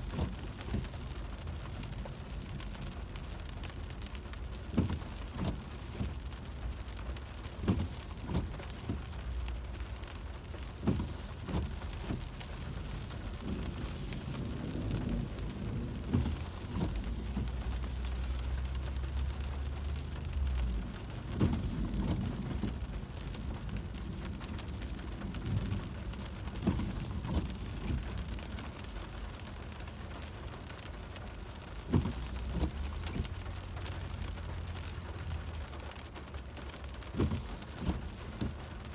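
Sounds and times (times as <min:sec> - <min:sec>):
heavy rain on car roof: 0:00.0 - 0:38.9
low rumble: 0:11.6 - 0:18.7.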